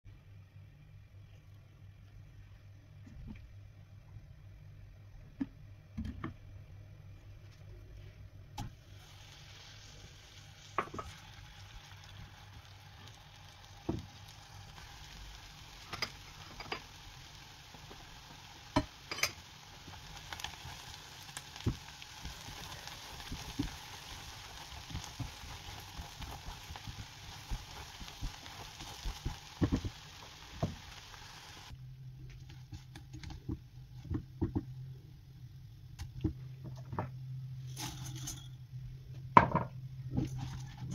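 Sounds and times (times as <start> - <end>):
low steady hum: 0.1 - 40.9
food sizzling in oil: 8.8 - 31.8.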